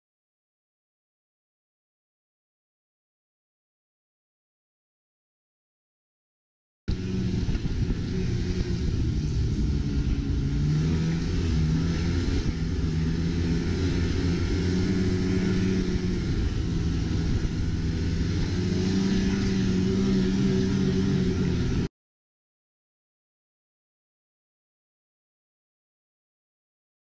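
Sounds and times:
snowmobile engine running: 6.9 - 21.9.

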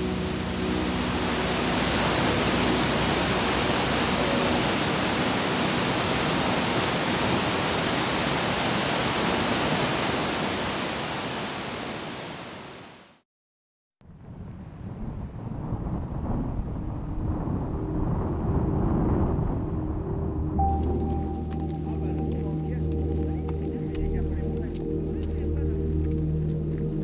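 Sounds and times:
falling water rushing: 0.0 - 13.2.

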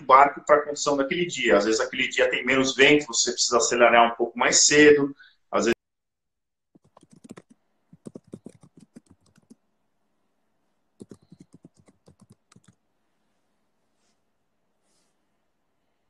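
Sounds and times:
computer keyboard typing: 6.8 - 9.6, 11.0 - 12.8.

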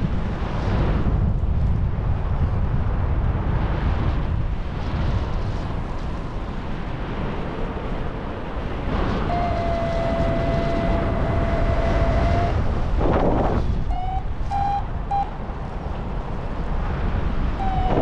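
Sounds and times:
wind rushing over microphone: 0.0 - 18.0
high electronic tone: 13.9 - 15.3, 17.6 - 18.0.

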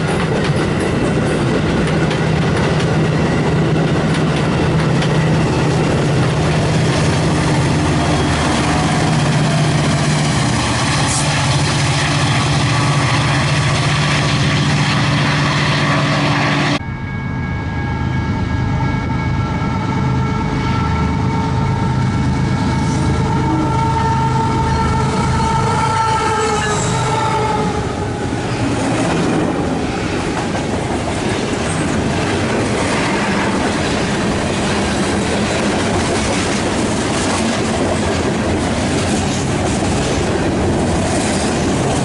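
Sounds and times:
train wheels on rails: 0.0 - 16.8, 22.2 - 42.0
freight train rumble: 0.0 - 42.0
low locomotive drone: 0.0 - 42.0
steady higher tones: 2.4 - 28.8.

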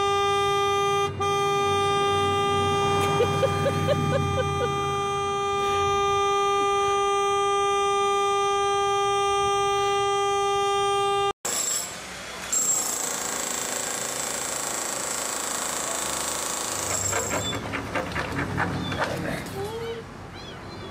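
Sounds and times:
car horn long blast: 0.0 - 11.4.

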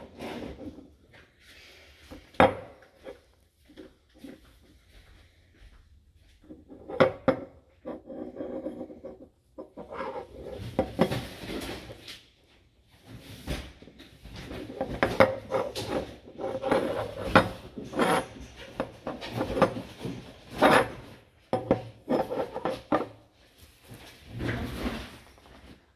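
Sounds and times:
metal part knocking and scraping: 14.5 - 23.2.

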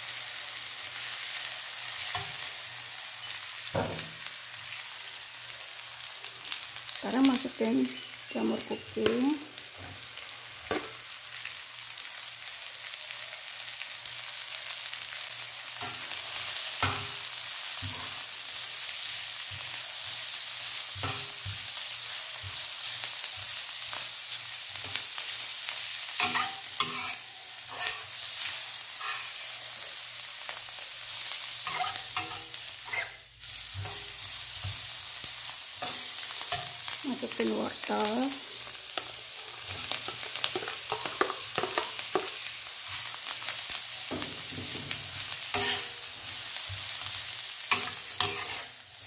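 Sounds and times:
vegetables sizzling in hot oil: 0.0 - 49.0
metal spatula scraping wok: 26.2 - 29.6, 31.6 - 34.8, 44.1 - 48.8.

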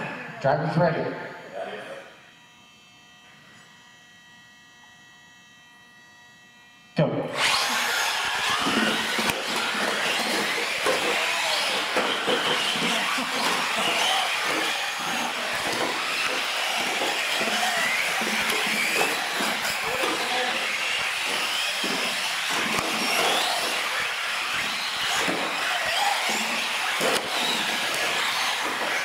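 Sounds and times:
small electric motors whining: 1.4 - 29.0
tyres on concrete floor: 7.3 - 29.0.

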